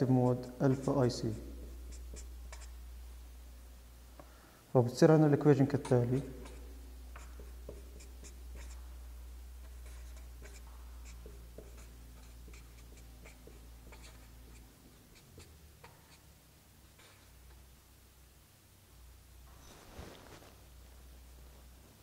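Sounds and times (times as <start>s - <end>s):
marker pen writing on paper: 0.6s - 2.8s, 5.8s - 8.9s, 9.6s - 16.3s.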